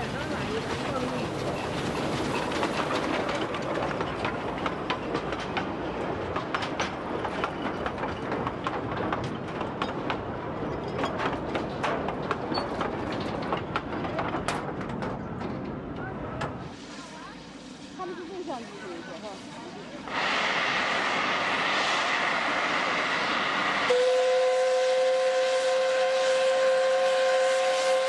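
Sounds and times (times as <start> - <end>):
wheels clicking on track: 0.0 - 16.6
train rumbling: 0.0 - 28.0.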